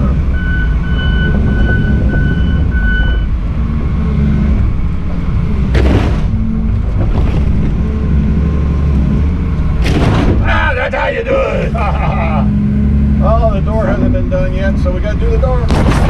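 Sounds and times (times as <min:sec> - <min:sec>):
excavator diesel engine running: 0:00.0 - 0:16.0
short electronic beeps: 0:00.3 - 0:03.4.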